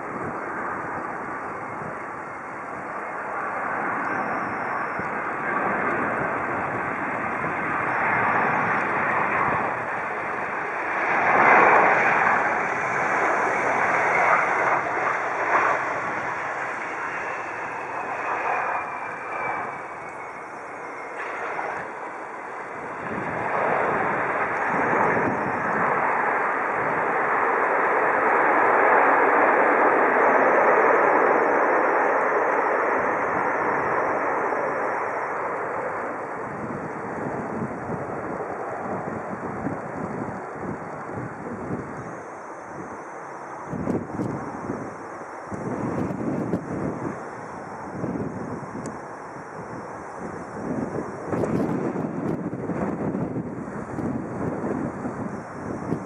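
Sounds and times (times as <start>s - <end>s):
faint falling engine whine: 0.0s - 56.0s
jet engine noise: 0.0s - 56.0s.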